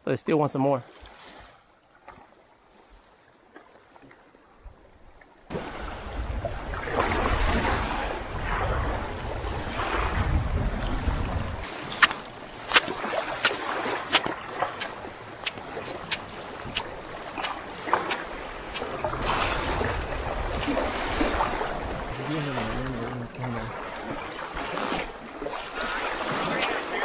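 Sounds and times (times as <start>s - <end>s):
wind gusting on microphone: 5.5s - 27.0s
sandalled footsteps on sand: 11.6s - 22.2s.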